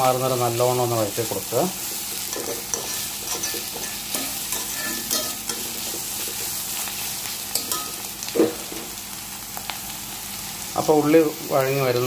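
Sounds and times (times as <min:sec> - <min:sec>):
onions sizzling in oil: 0:00.0 - 0:12.0
metal spatula scraping pan: 0:02.1 - 0:06.5.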